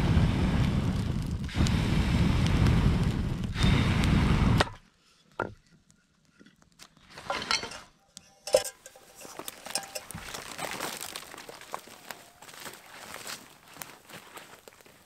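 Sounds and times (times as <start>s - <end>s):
person blowing into fire: 0.0s - 4.8s
footsteps in dry brush: 8.9s - 15.0s.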